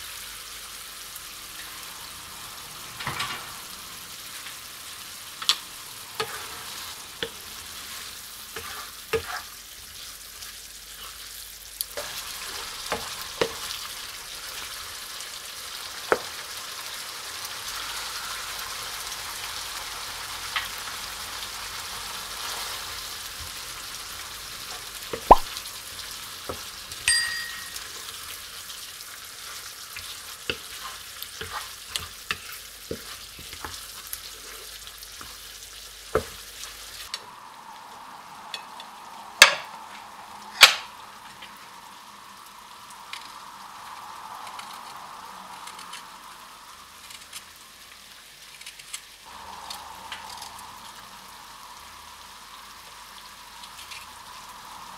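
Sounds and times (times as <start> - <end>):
curry sizzling in a pan: 0.0 - 54.9
ringing clink: 27.1 - 27.9.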